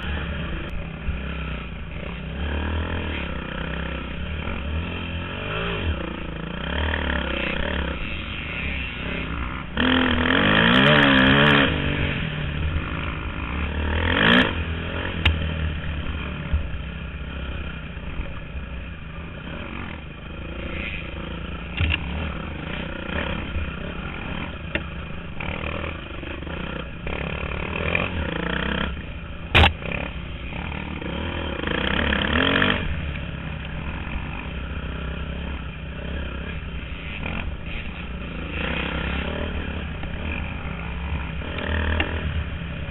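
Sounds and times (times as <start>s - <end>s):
dirt bike engine revving: 0.0s - 42.9s.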